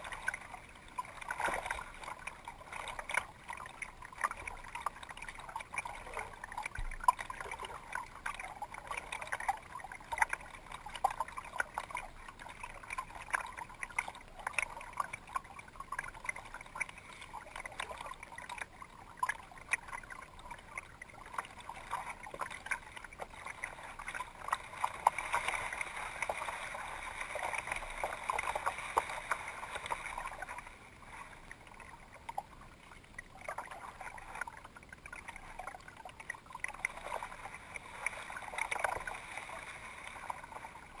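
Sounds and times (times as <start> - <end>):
paddle splashing in water: 0.0 - 41.0
water dripping off paddle: 0.0 - 41.0.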